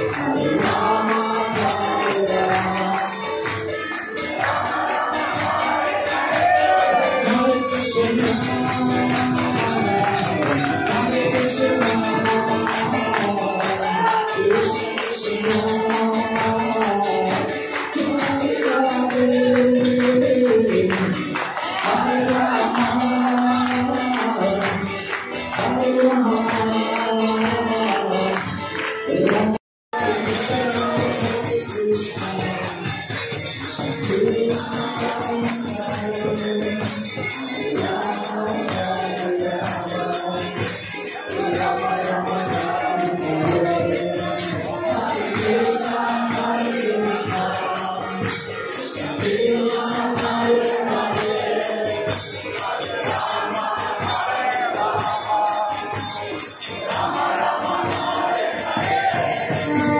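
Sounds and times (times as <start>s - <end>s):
jingling percussion: 0.0s - 59.9s
group chanting in unison: 4.2s - 17.4s, 18.0s - 24.7s, 49.0s - 56.2s, 56.8s - 59.9s.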